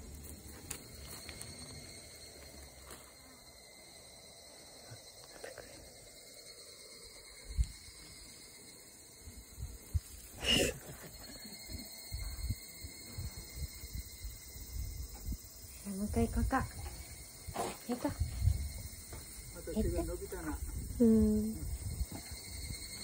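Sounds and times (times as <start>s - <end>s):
insect chirring: 0.0s - 23.0s.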